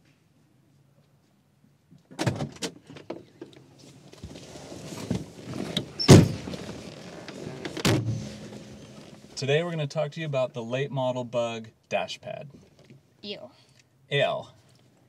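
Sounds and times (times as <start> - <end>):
rustling and shuffling: 2.8 - 9.4
heavy thump on seat: 5.0 - 6.8, 7.7 - 9.3.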